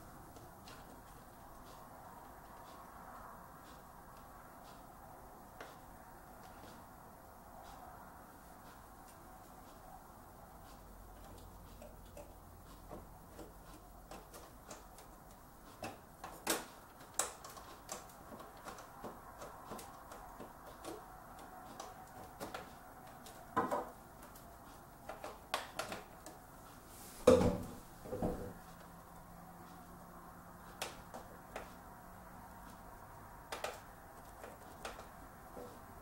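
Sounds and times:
sharp knocks and clack: 0:21.7 - 0:24.4
graphics card clicks and taps: 0:33.5 - 0:35.7.

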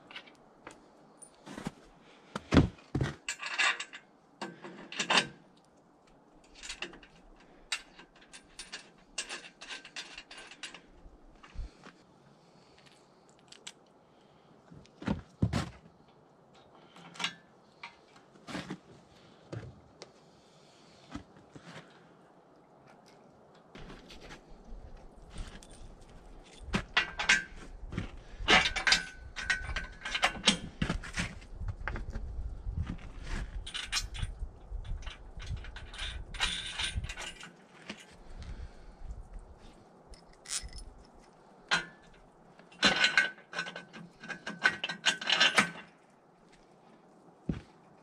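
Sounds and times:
metal hardware clinking and rattling: 0:03.0 - 0:05.4, 0:06.4 - 0:11.8, 0:23.8 - 0:31.4, 0:33.6 - 0:38.6, 0:40.1 - 0:46.0.

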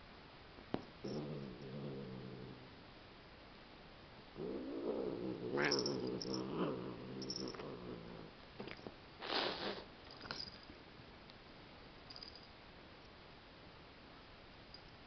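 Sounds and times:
cat growling: 0:01.0 - 0:02.8, 0:04.4 - 0:08.4
cat hissing: 0:04.4 - 0:08.1, 0:09.2 - 0:09.9.

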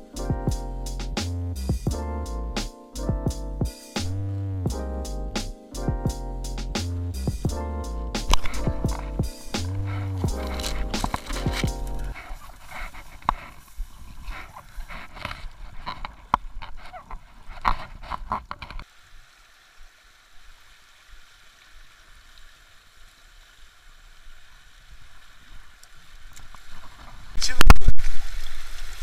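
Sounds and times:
rustling through tall grass: 0:08.0 - 0:18.4
river flowing over stones: 0:18.8 - 0:27.4.

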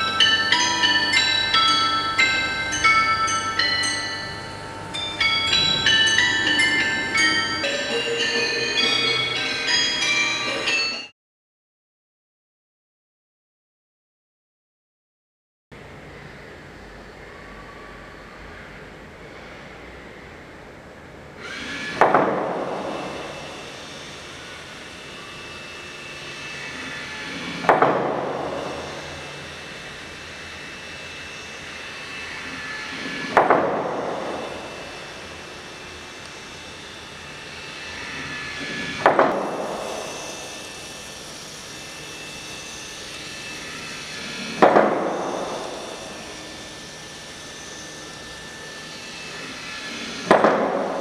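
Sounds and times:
long ringing tones: 0:00.0 - 0:11.1, 0:22.6 - 0:50.1.

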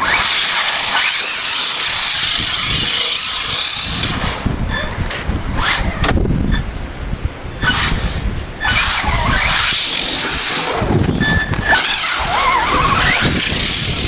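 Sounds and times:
electric motor whine: 0:00.0 - 0:06.1, 0:07.6 - 0:14.0
rushing hiss: 0:07.6 - 0:11.0.

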